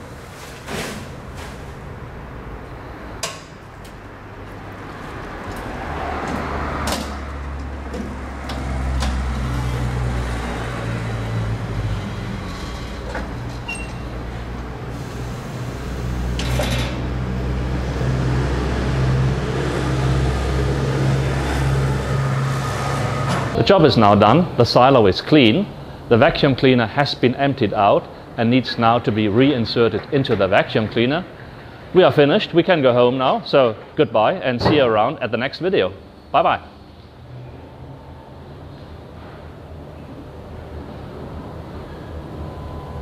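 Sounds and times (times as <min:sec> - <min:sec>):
forklift running: 0:00.0 - 0:26.8, 0:37.4 - 0:43.0.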